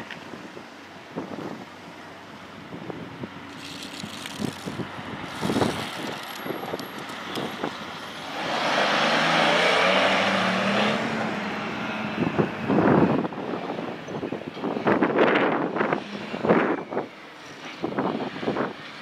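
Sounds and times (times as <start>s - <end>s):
truck driving past: 3.2s - 13.9s.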